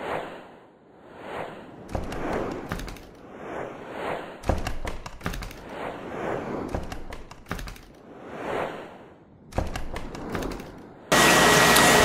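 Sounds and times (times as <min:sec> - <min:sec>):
swelling whooshes: 0:00.0 - 0:07.3, 0:08.0 - 0:10.6
sharp hits and thuds: 0:04.4 - 0:05.6.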